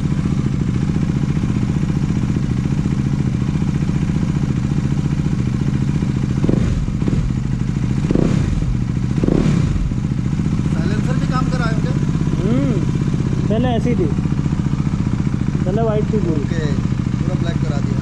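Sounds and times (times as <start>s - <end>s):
motorcycle engine idling and revving: 0.0s - 18.0s.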